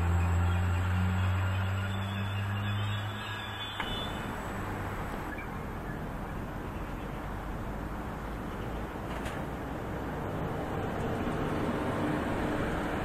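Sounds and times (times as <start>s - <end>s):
electric train humming: 0.0s - 6.0s.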